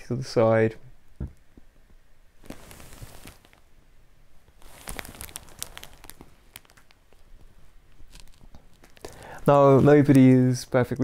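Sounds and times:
plastic bag crinkling: 2.4s - 3.7s, 4.5s - 11.0s.

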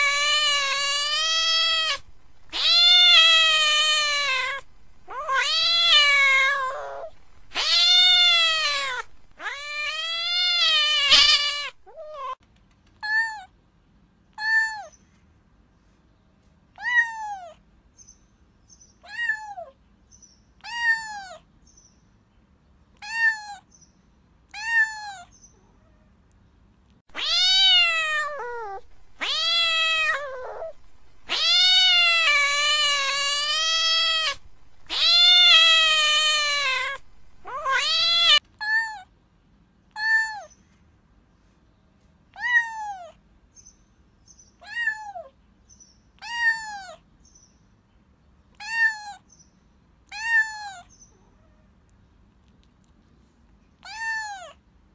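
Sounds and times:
cat meowing: 0.0s - 12.4s, 16.8s - 17.6s, 19.0s - 19.8s, 20.6s - 21.4s, 23.0s - 23.7s, 24.5s - 26.1s, 27.1s - 39.1s, 39.9s - 40.5s, 42.3s - 43.2s, 44.6s - 45.4s, 46.2s - 47.0s, 48.6s - 49.2s, 50.1s - 51.6s, 53.8s - 54.6s.

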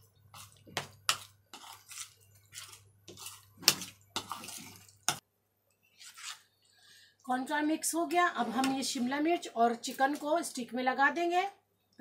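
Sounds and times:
metal spoon scraping plastic bowl: 0.3s - 5.2s, 5.9s - 6.5s.

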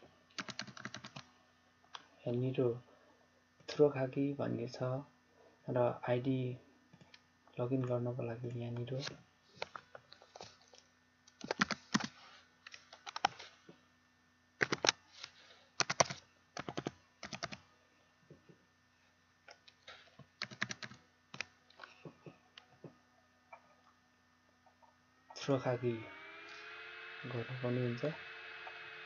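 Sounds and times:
keyboard typing: 0.4s - 1.2s, 11.3s - 12.2s, 13.0s - 13.4s, 14.6s - 15.0s, 15.8s - 17.6s, 20.4s - 21.5s.

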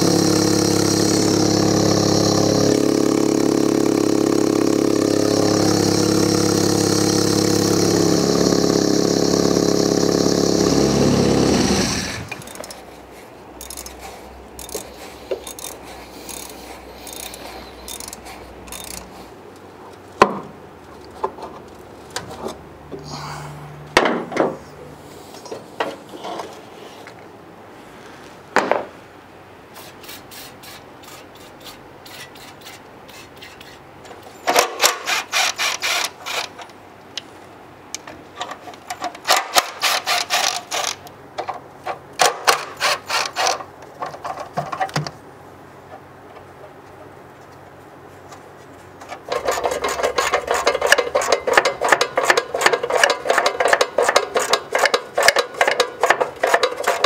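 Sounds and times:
tool knocks: 28.6s - 28.9s
scraping and clicking strokes: 48.3s - 57.0s.

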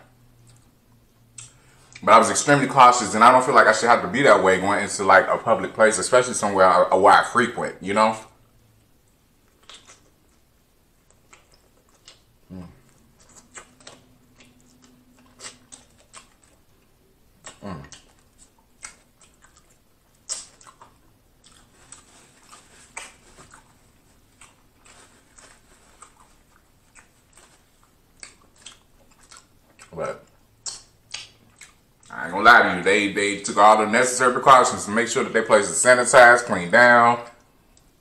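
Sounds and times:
person chewing fried food: 0.1s - 2.0s, 8.5s - 32.2s.

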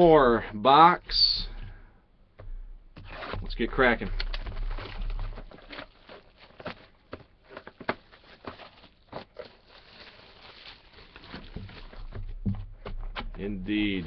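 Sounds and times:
cardboard box taps and rustles: 11.3s - 13.4s.

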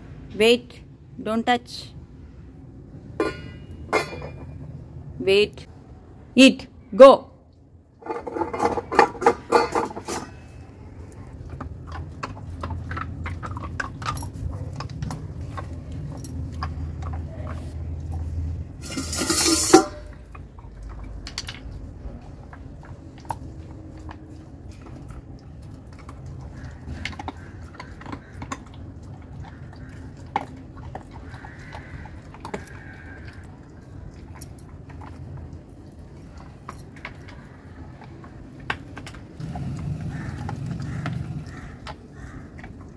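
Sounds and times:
puppy gnawing on chew stick: 11.0s - 18.7s, 20.2s - 42.9s.

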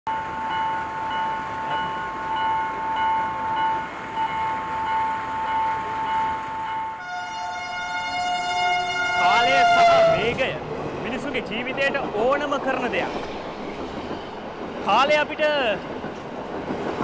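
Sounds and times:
train horn: 7.0s - 10.4s.

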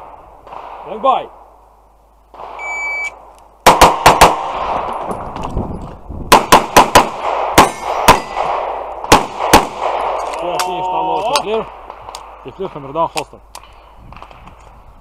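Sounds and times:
shot timer beep: 2.6s - 3.2s
pistol shots: 3.6s - 4.9s, 6.3s - 10.2s.

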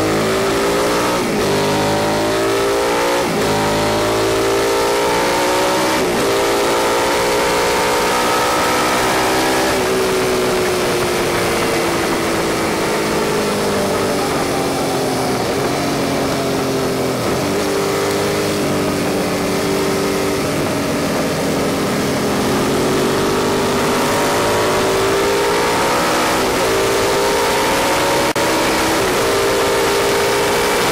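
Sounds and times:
motorcycle engine revving: 0.0s - 30.9s
wind rush: 8.0s - 25.1s.

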